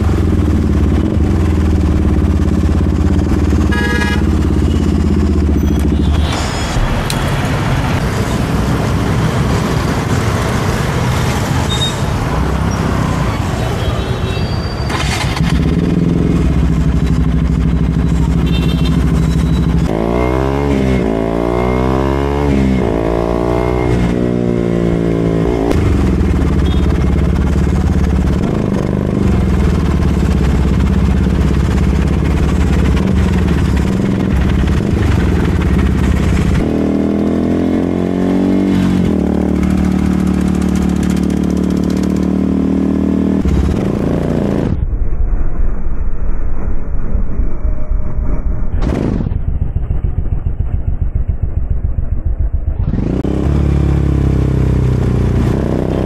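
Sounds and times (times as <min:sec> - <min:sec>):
motorcycle engine revving: 0:00.0 - 0:06.3, 0:14.9 - 0:44.9, 0:48.6 - 0:56.0.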